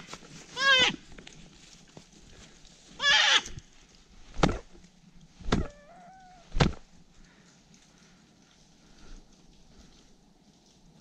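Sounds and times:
dull thumps: 0:06.5 - 0:06.9.

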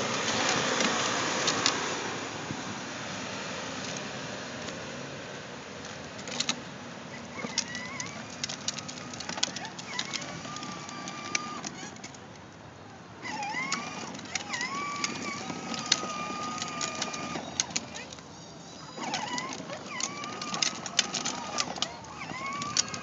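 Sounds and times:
wheels crackling over grit: 0:00.0 - 0:23.0
wavering motor whine: 0:13.2 - 0:23.0.

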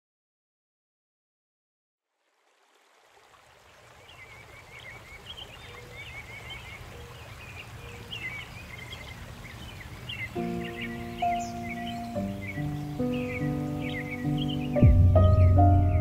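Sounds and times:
flowing water rushing: 0:02.1 - 0:16.0
birds chirping: 0:03.6 - 0:16.0.

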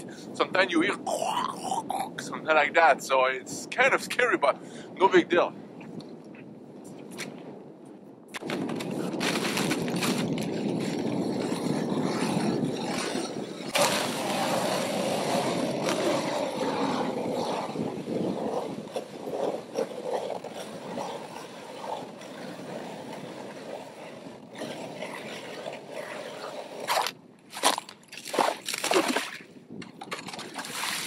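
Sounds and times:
ice auger grinding through ice: 0:08.4 - 0:29.0.

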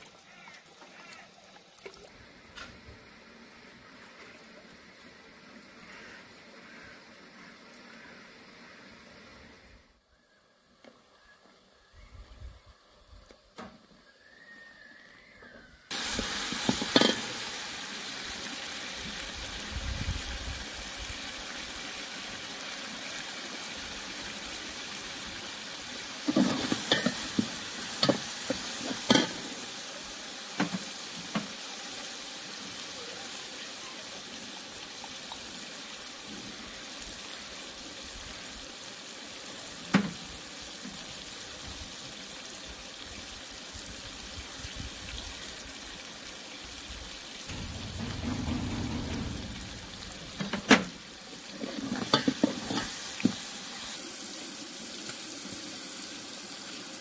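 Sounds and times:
vegetables sizzling in a pot: 0:15.9 - 0:57.0
low muffled rumble: 0:47.5 - 0:51.0.

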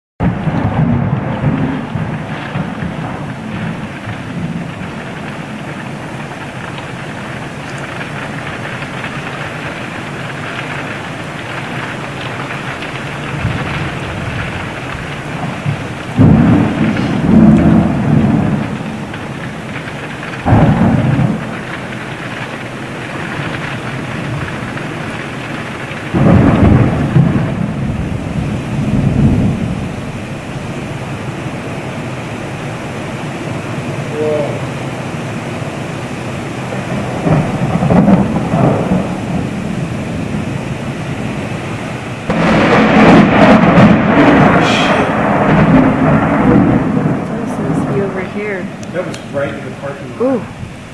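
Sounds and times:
heavy rain falling: 0:00.2 - 0:50.9
thunder claps and rumbles: 0:00.2 - 0:50.9.

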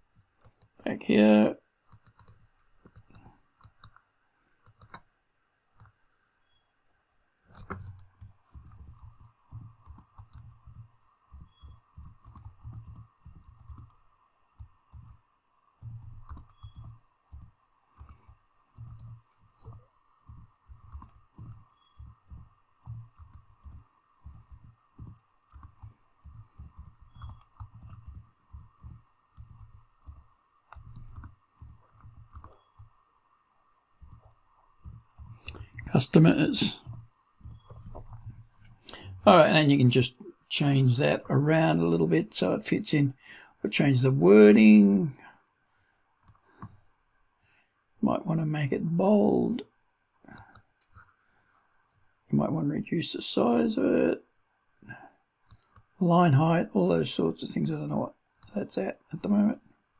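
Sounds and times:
typing on a keyboard: 0:01.9 - 0:04.0, 0:04.7 - 0:05.0, 0:07.5 - 0:14.0, 0:14.6 - 0:15.2, 0:15.8 - 0:33.0, 0:34.0 - 0:35.9, 0:36.8 - 0:38.4.

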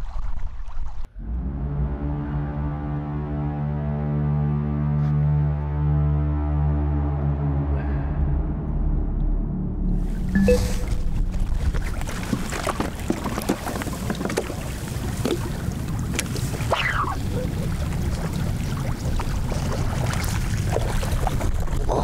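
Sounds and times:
small waves lapping: 0:10.5 - 0:22.0.

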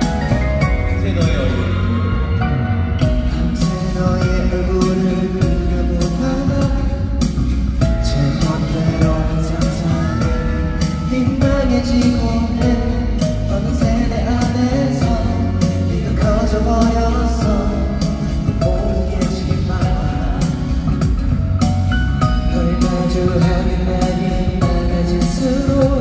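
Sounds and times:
backing track with steady beat: 0:00.0 - 0:26.0
man singing into microphone: 0:03.1 - 0:21.3, 0:22.2 - 0:26.0.

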